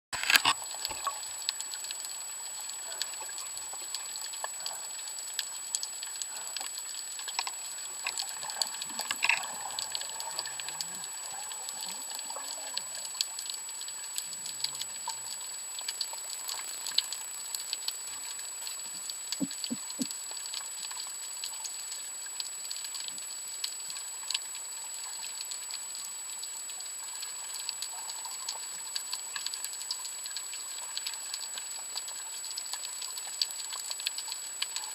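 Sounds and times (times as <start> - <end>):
snapping shrimp crackle: 0.2 - 1.2.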